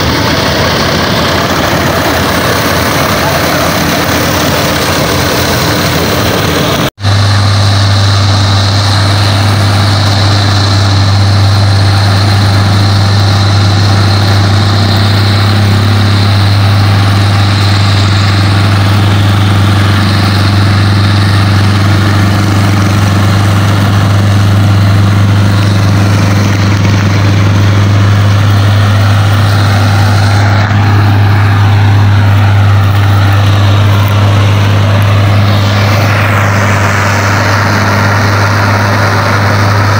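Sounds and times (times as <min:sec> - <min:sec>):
combine harvester engine drone: 0:00.0 - 0:39.9
dense mechanical noise: 0:00.0 - 0:39.9.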